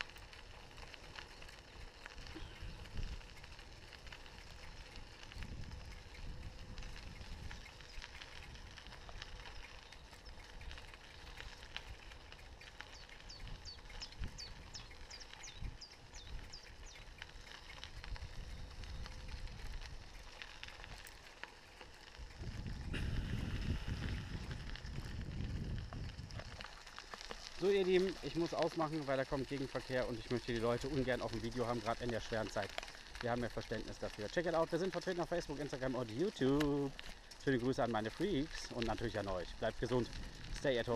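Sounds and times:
bicycle tyres on gravel: 0.0s - 40.9s
wind noise on microphone: 2.2s - 9.4s, 13.1s - 21.1s, 22.1s - 26.8s, 39.8s - 40.8s.

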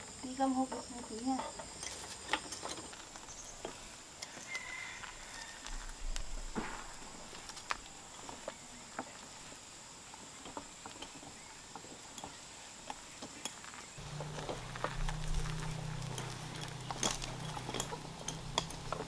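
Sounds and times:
wheelchair rolling over concrete: 0.0s - 19.0s
faint high whine: 14.0s - 19.0s.

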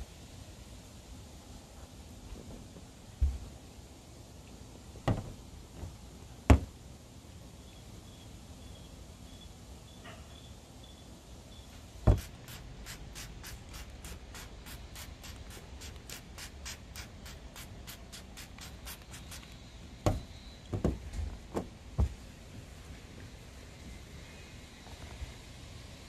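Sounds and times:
handling thumps: 5.0s - 6.8s, 12.0s - 12.3s, 20.0s - 22.3s
trigger sprayer hissing: 12.1s - 20.6s.

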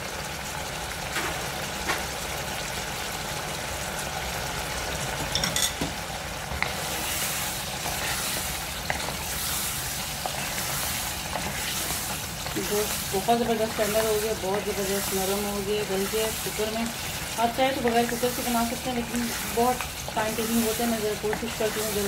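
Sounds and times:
meat sizzling in oil: 0.0s - 22.0s
wooden spatula stirring meat: 6.5s - 22.0s.

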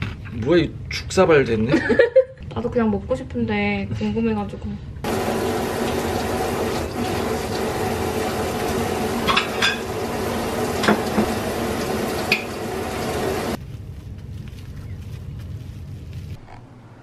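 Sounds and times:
plastic wrap crinkling: 13.6s - 16.4s.

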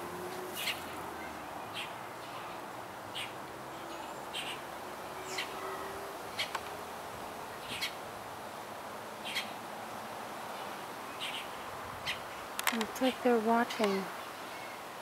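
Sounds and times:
bird chirping: 0.3s - 6.6s, 7.6s - 8.0s, 9.2s - 9.6s, 10.6s - 14.8s.

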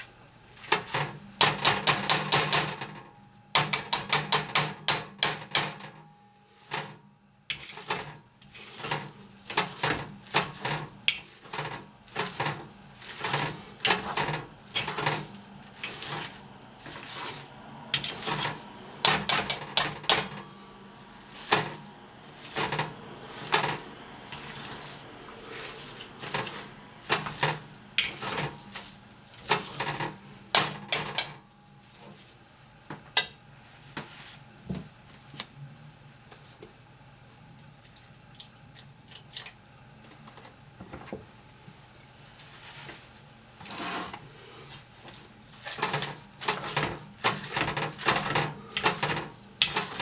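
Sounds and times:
potato masher clanking on steel pan: 0.6s - 6.0s, 6.7s - 31.4s, 45.6s - 50.0s.

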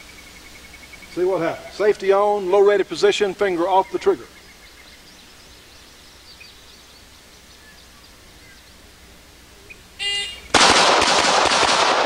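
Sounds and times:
pistol shots with echo: 10.5s - 12.0s.

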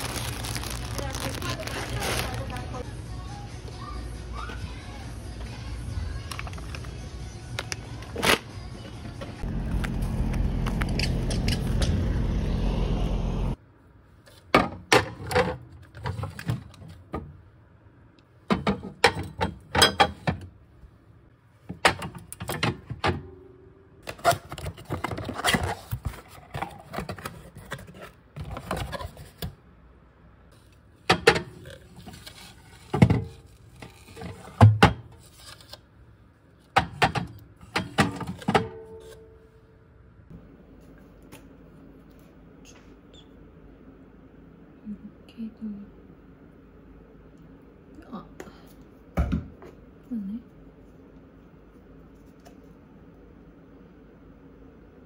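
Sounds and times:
objects being handled: 0.0s - 2.8s
low rumble: 9.4s - 13.6s.

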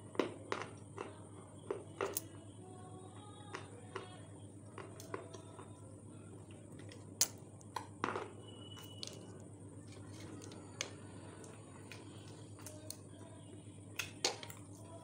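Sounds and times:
background hum and hiss: 0.0s - 15.0s
stick clicking on chunks in bowl: 14.0s - 14.6s.

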